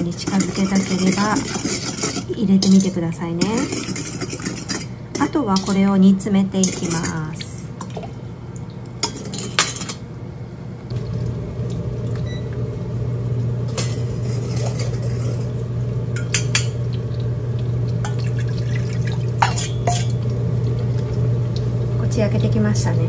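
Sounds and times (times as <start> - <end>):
steady low hum: 0.0 - 23.0
spoon clinking against steel bowls: 0.1 - 5.8, 6.6 - 7.2, 9.0 - 10.0, 13.7 - 15.5, 16.2 - 16.9, 19.4 - 20.2.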